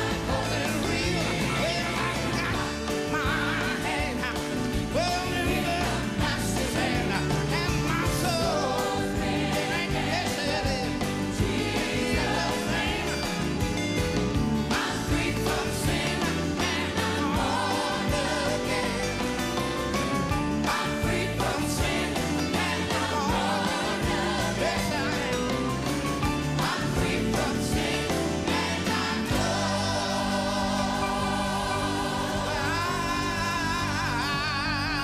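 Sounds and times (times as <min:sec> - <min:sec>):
man singing: 0:00.0 - 0:08.9, 0:09.7 - 0:11.2, 0:32.4 - 0:35.0
band with keyboards and drums: 0:00.0 - 0:35.0
choir singing: 0:00.0 - 0:35.0.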